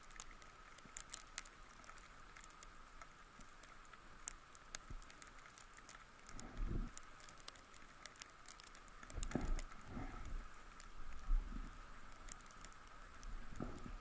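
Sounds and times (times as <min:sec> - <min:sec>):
faint steady high hum: 0:00.0 - 0:14.0.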